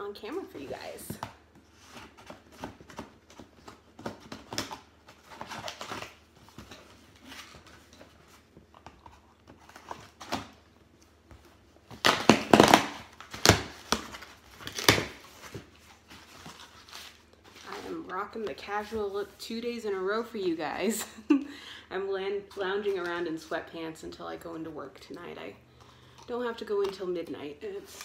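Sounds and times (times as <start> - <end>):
tape and cardboard ripping: 1.9 - 8.1, 11.8 - 18.0.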